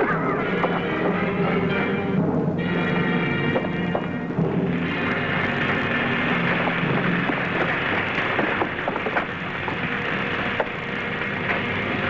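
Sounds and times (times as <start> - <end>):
electrical crackling hiss: 4.7 - 11.5.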